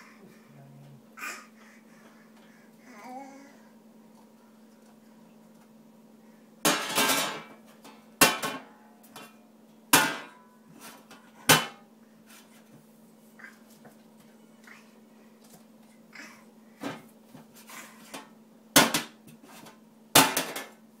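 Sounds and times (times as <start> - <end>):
metal trash can lid banging: 6.7 - 7.5, 8.2 - 9.3, 10.0 - 10.4, 20.2 - 20.7.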